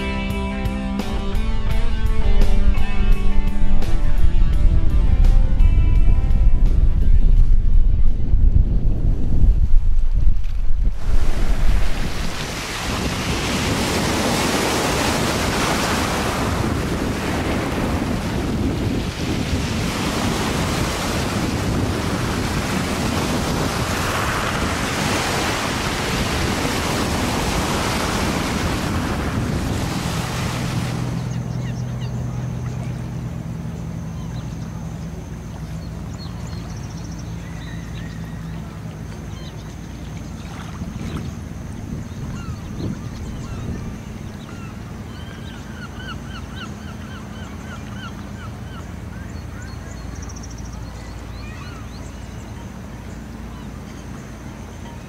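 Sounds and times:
steady low hum: 0.0s - 55.0s
small waves on pebble beach: 10.4s - 31.4s.

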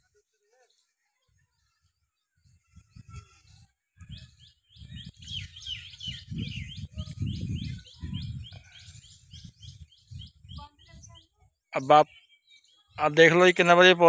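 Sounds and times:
wind rumble on microphone: 2.3s - 11.4s
bird chirping: 4.0s - 14.0s.

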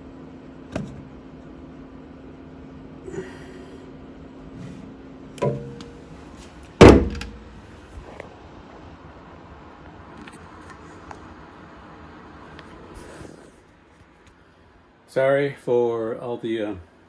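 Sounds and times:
steady low hum: 0.0s - 17.0s
heavy thump: 4.6s - 6.0s, 6.8s - 7.7s
light clunks of handling: 5.4s - 6.0s.

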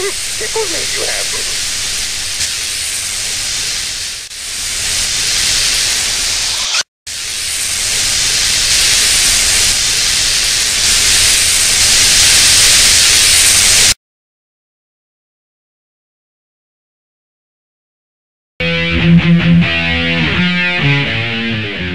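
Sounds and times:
electric hiss: 0.0s - 14.0s.

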